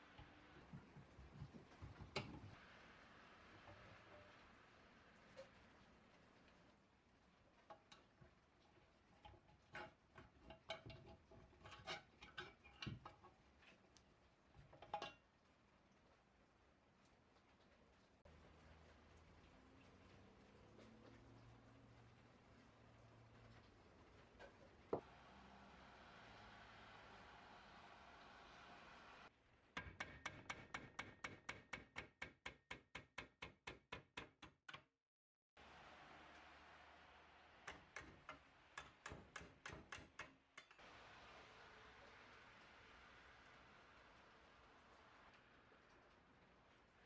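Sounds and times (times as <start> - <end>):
faint steady hiss: 0.0 - 29.7, 35.6 - 39.6, 40.2 - 47.0
hammer tapping on cast iron: 29.8 - 34.8, 37.6 - 40.8.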